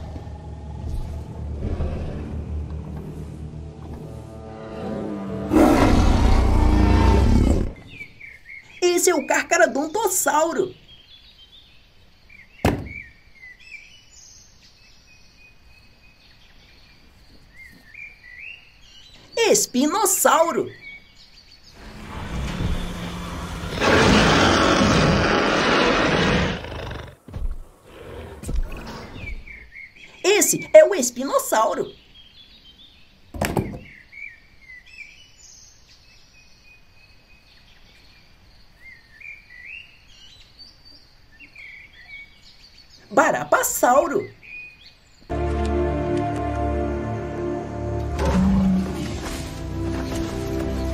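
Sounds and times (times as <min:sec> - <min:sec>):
birds chirping: 0:03.9 - 0:45.4, 0:47.4 - 0:50.9
plastic toy knocking down: 0:12.6 - 0:13.0
single thump: 0:12.6 - 0:13.0, 0:33.4 - 0:33.9.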